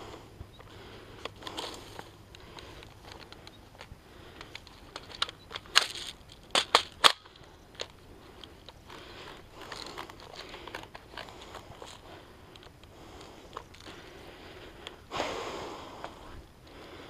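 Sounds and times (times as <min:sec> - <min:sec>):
sharp snaps and cracks: 0:00.6 - 0:14.2.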